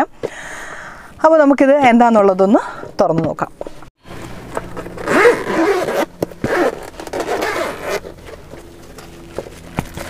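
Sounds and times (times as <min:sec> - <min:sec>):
case handling: 0:04.5 - 0:10.0
zipper rasping open: 0:04.6 - 0:10.0.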